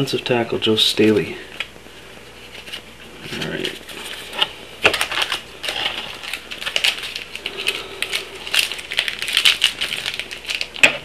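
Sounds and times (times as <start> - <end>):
card packs crinkling and clicking: 2.5 - 11.0.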